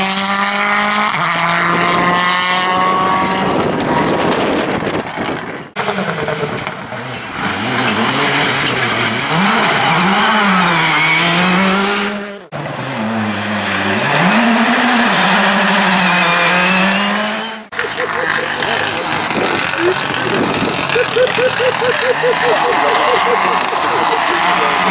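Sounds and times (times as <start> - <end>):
rally cars accelerating past: 5.8 - 24.9.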